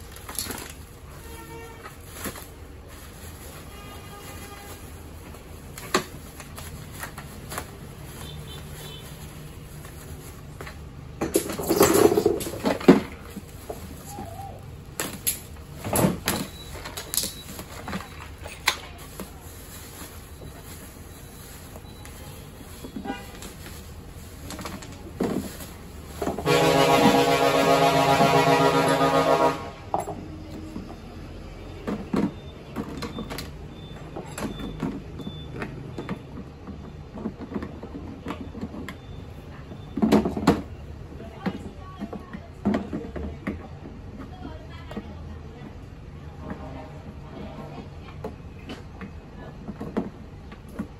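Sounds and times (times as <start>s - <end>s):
bubble wrap rustling and crinkling: 0.0s - 11.0s, 11.7s - 28.7s.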